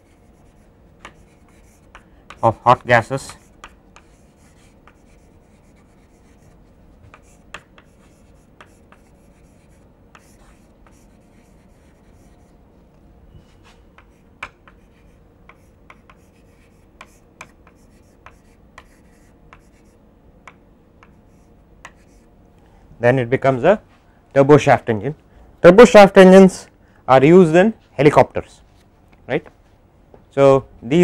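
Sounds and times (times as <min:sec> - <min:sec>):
chalk tapping and scratching: 0:00.0 - 0:12.5, 0:13.6 - 0:22.3
faint steady hum: 0:00.0 - 0:31.0.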